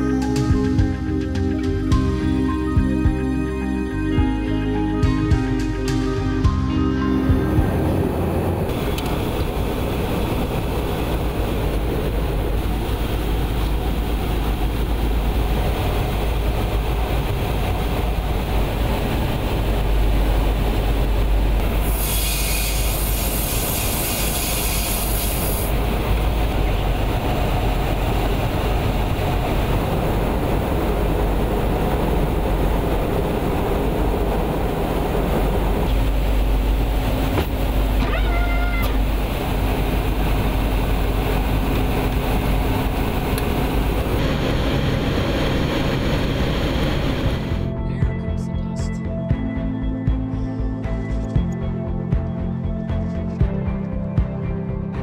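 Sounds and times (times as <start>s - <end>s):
aircraft engines roaring in flight: 0.0s - 49.2s
loud hiss: 21.8s - 25.8s.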